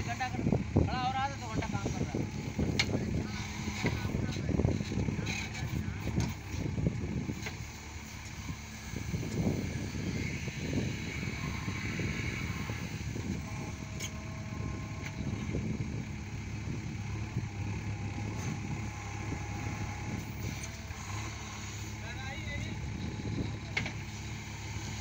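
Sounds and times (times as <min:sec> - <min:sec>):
diesel engine under load: 0:00.0 - 0:25.0.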